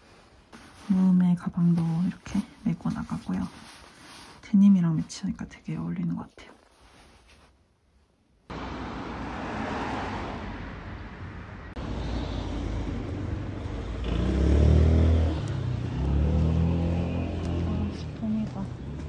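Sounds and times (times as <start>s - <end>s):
cars passing: 8.5s - 19.0s
vehicle engine passing close: 8.5s - 19.0s.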